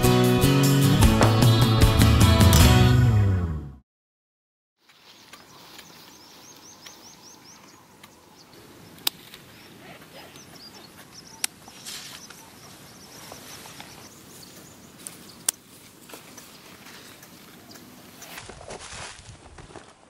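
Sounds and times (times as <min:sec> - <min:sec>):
bird chirping: 0:05.0 - 0:15.6, 0:16.3 - 0:18.4
pruning shears snipping: 0:09.0 - 0:09.5.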